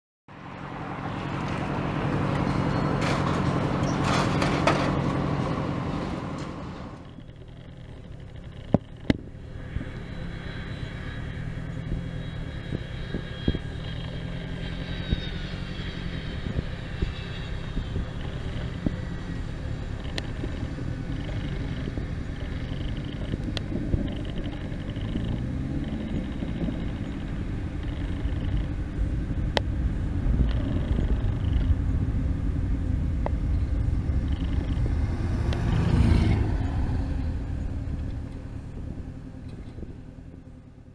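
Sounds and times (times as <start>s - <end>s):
jet engines rumbling: 0.3s - 40.9s
loud rushing of air: 28.8s - 40.2s.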